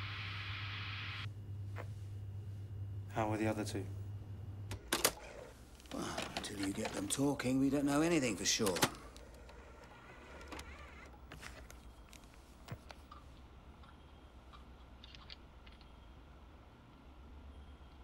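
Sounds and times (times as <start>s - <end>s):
low steady hum: 0.0s - 18.0s
tape mechanism clicking: 8.5s - 12.2s.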